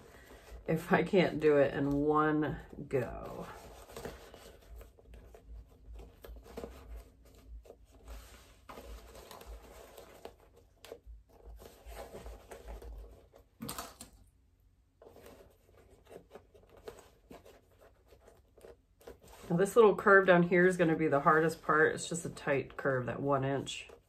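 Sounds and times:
fabric rustling: 0.0s - 13.6s.

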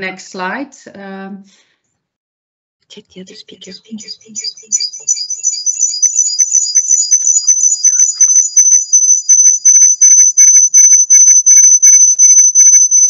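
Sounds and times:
rapid electronic beeping: 3.3s - 13.0s
high-pitched electronic whistle: 3.6s - 13.0s.

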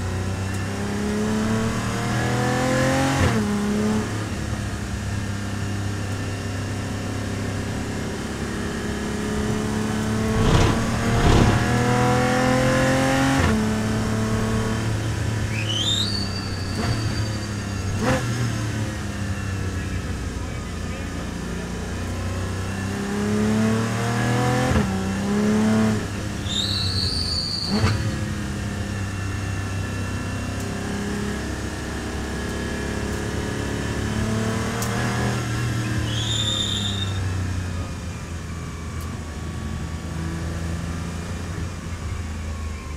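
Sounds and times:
car engine revving: 6.9s - 15.6s
tyres squealing: 26.4s - 27.9s, 36.0s - 37.3s.

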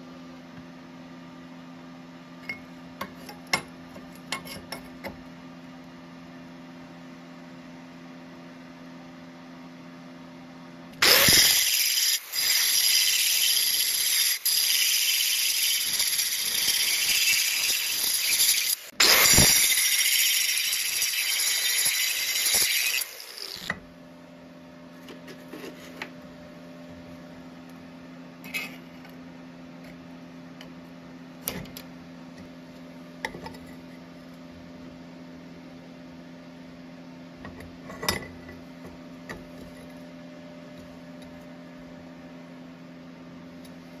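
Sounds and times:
welding arc crackling: 11.0s - 23.7s.

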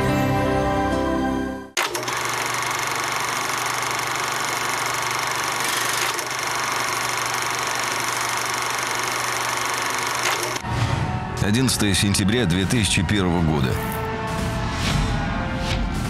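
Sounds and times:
machine running with hum and hiss: 1.8s - 10.6s.

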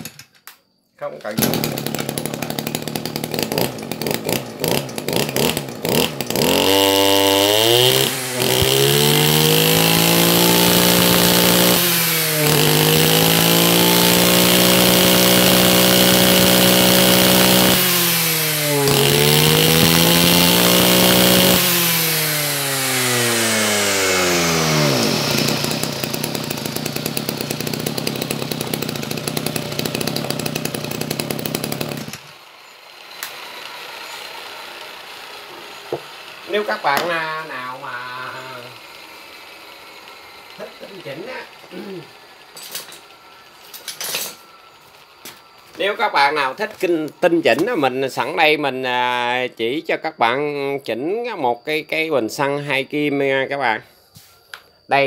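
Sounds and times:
brushcutter engine idling and revving: 1.2s - 48.7s.

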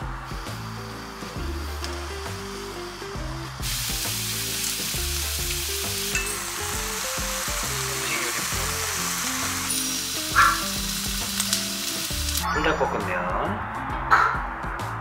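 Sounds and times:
steaks sizzling in a frying pan: 0.6s - 12.4s.

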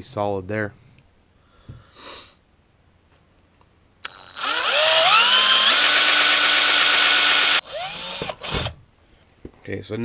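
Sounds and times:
cordless drill motor whine: 4.0s - 8.8s.

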